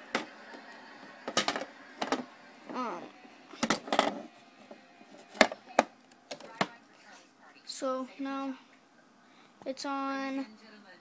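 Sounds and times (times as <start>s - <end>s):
cash register clicks and knocks: 1.3s - 2.3s.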